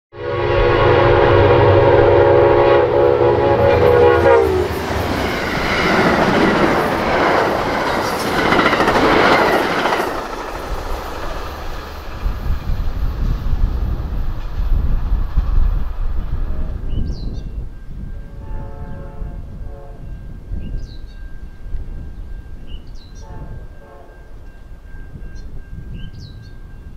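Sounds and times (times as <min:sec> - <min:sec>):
train horn chord: 0:00.1 - 0:05.1, 0:18.0 - 0:20.3, 0:23.2 - 0:24.6
train rushing past: 0:00.1 - 0:26.9
wheels clicking over rail joints: 0:04.8 - 0:12.8.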